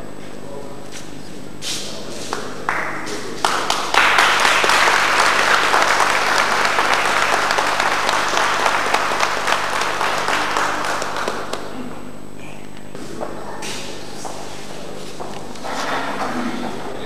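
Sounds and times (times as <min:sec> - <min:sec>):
audience applauding: 0:02.2 - 0:11.8.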